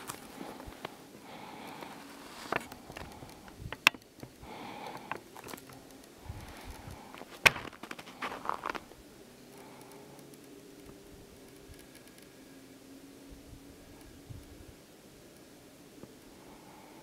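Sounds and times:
handling noise rubbing and scratching: 1.8s - 4.4s, 5.1s - 8.9s
sharp clicks: 2.5s - 8.8s.

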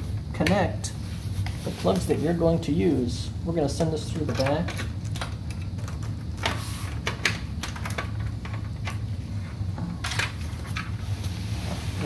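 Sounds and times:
steady low hum: 0.0s - 12.0s
cable clicking and rustling: 3.8s - 11.0s.

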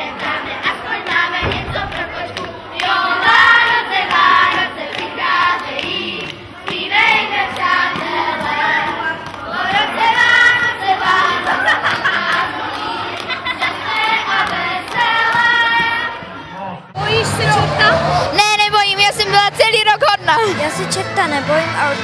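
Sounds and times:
children singing together: 0.0s - 16.2s
hand clapping: 1.0s - 15.9s
low thump: 1.4s - 3.3s.

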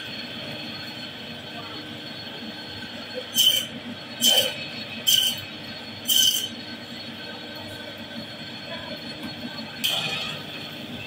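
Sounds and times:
saw blade screeching: 3.2s - 6.6s, 9.8s - 10.6s
band saw humming: 3.2s - 6.8s.

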